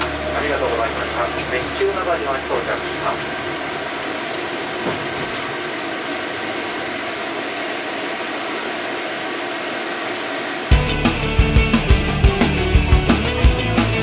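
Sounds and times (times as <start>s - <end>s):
tram running rumble and hiss: 0.0s - 14.0s
music: 10.7s - 14.0s.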